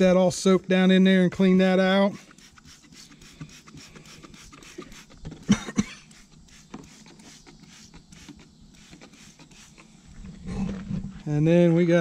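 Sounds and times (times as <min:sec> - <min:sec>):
spray bottle spritzing: 0:02.1 - 0:10.0.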